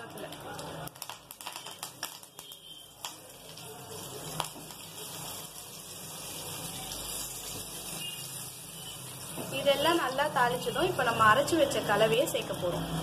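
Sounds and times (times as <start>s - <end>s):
seeds popping in hot oil: 0.0s - 13.0s
oil hissing: 3.7s - 9.9s.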